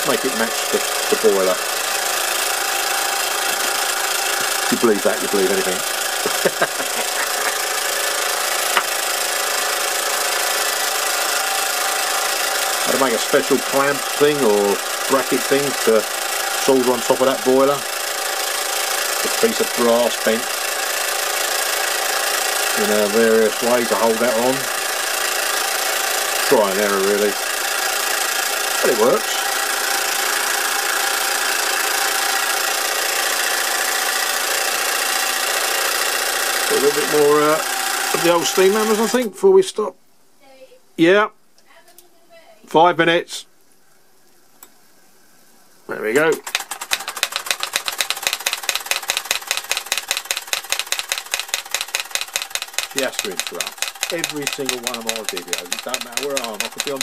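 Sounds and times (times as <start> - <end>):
toy steam engine hissing: 0.0 - 39.3, 46.4 - 57.0
model steam hammers clattering: 46.3 - 57.0
sharp click: 46.3 - 57.0.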